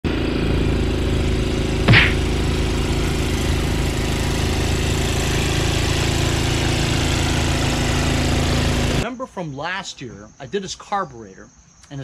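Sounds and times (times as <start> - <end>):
snowblower engine running: 0.1 - 9.0
short sharp hit: 1.9 - 2.3.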